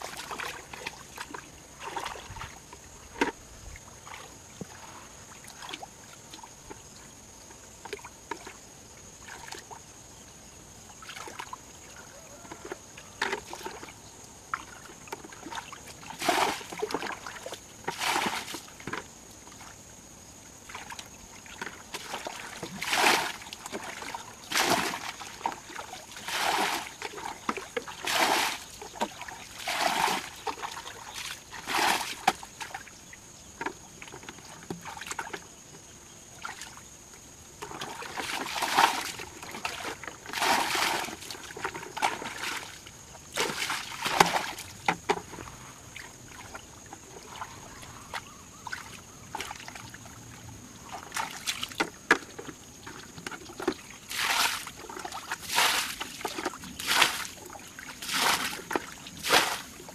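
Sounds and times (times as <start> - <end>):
water splashing: 0.0 - 6.4, 14.5 - 19.7, 20.7 - 32.9, 37.6 - 50.2, 50.8 - 59.9
water sloshing in bucket: 0.0 - 7.1, 7.8 - 8.6, 9.2 - 9.9, 10.9 - 19.8, 20.5 - 59.9.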